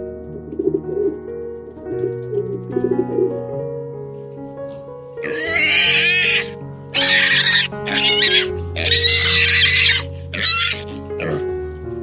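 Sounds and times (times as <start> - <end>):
background music: 0.0 - 12.0
piglets squealing: 5.2 - 11.4.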